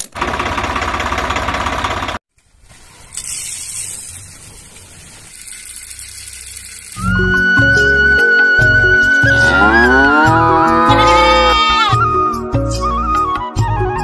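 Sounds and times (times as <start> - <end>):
dry lentils pouring: 2.8 - 7.1
small engine puttering: 3.0 - 7.8.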